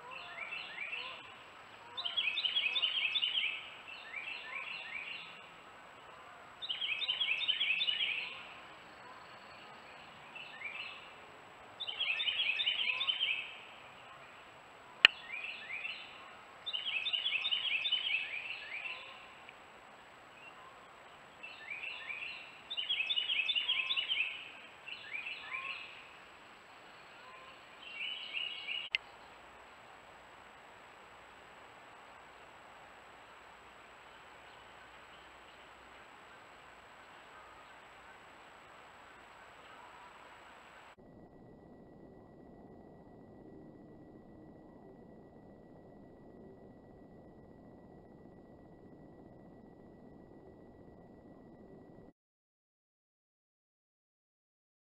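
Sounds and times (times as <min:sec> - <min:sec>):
bird calling: 0:00.0 - 0:19.5, 0:20.4 - 0:26.2, 0:26.9 - 0:29.3, 0:33.3 - 0:41.0.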